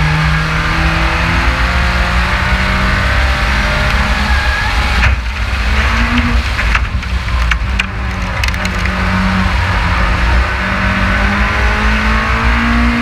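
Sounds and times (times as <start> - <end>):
race car engine at speed: 0.0 - 13.0
wind and road noise: 0.0 - 13.0.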